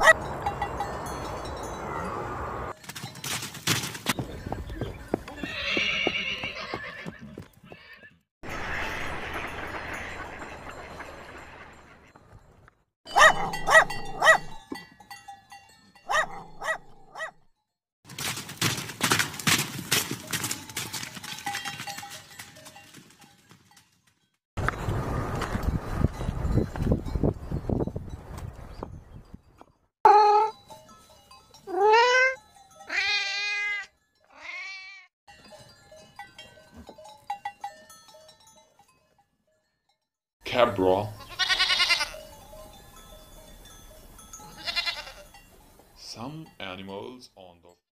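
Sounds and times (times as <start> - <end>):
small dog barking: 13.2 - 14.6, 16.1 - 17.4
cat meowing: 31.8 - 35.1.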